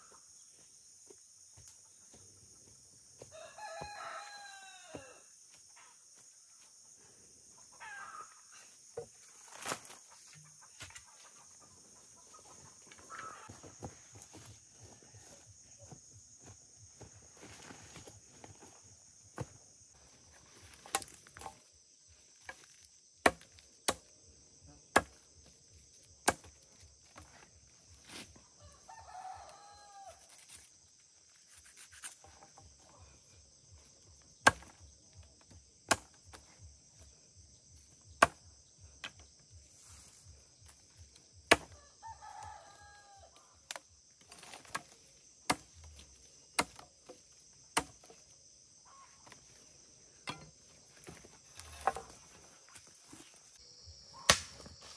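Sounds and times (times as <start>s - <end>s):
rooster crowing: 3.3s - 5.3s, 28.6s - 30.3s, 41.8s - 43.4s
sharp chopping strikes: 34.4s - 34.8s, 38.2s - 38.4s, 41.5s - 41.7s, 54.2s - 54.7s
high-pitched insect drone: 53.2s - 54.9s.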